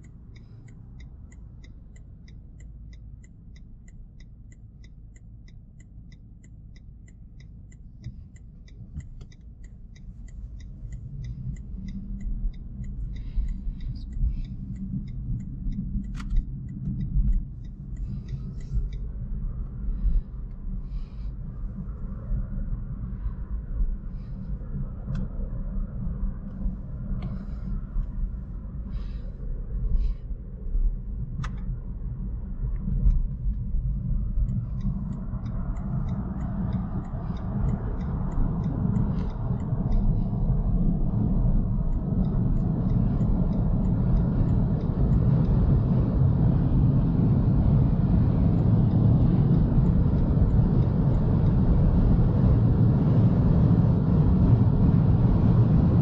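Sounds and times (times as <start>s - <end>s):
light clicks: 0.0s - 19.7s, 31.3s - 31.8s
road and tyre rumble: 0.0s - 56.0s
wind noise: 21.8s - 56.0s.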